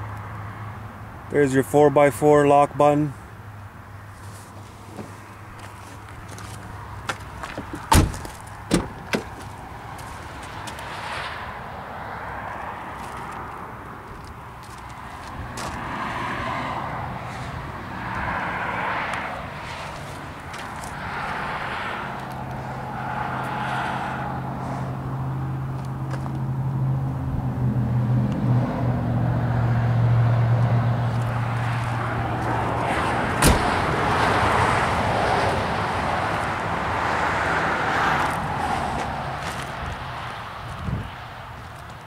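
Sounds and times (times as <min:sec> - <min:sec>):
outdoor noise: 0:00.0 - 0:42.0
sharp knock: 0:33.4 - 0:33.7.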